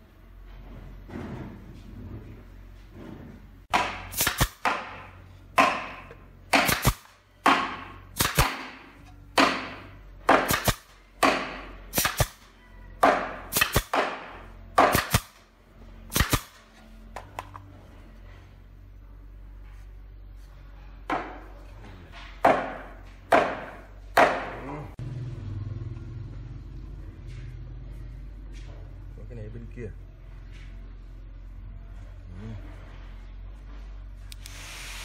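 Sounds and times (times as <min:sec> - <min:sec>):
nail gun firing: 0:03.7 - 0:15.4, 0:16.1 - 0:16.6.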